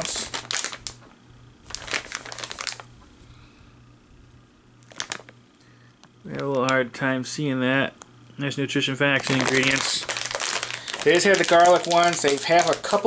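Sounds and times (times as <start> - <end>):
plastic bag crinkling: 0.0 - 3.0, 4.8 - 5.4, 9.2 - 13.0.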